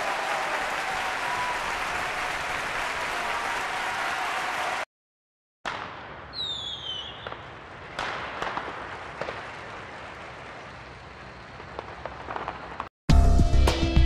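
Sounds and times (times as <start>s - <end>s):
firework burst: 5.7s - 12.9s
firework pops and crackling: 5.7s - 12.9s
falling firework whistle: 6.3s - 7.6s.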